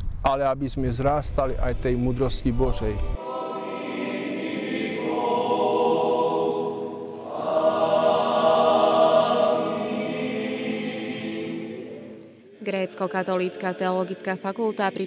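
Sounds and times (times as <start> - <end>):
male choir singing a cappella: 3.2 - 15.0.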